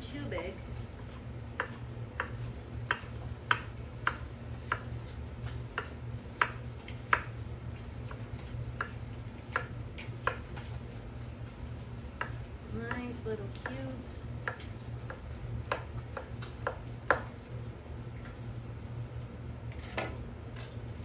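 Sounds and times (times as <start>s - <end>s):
knife chopping on wooden board: 1.5s - 4.9s, 5.5s - 7.3s, 8.0s - 10.7s, 12.2s - 13.8s, 14.4s - 17.3s.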